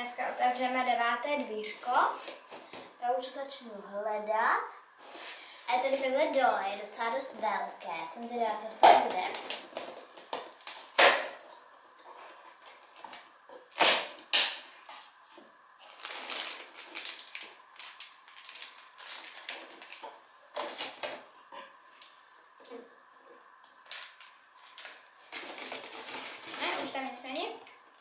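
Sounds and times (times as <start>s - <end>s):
plastic bag crinkling: 15.8s - 21.3s, 23.8s - 27.1s.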